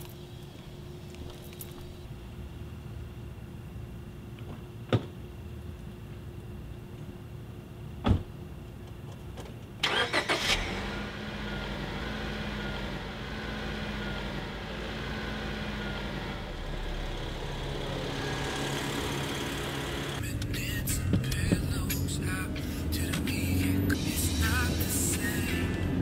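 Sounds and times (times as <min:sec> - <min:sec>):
car engine cranking and idling: 0:08.8 - 0:26.0.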